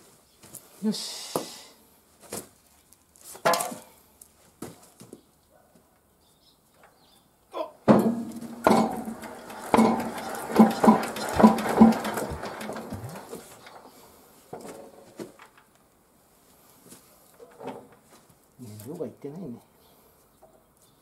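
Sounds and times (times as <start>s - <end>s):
metal clanks of hand crank: 7.9s - 13.9s
diesel engine turning over: 7.9s - 14.2s.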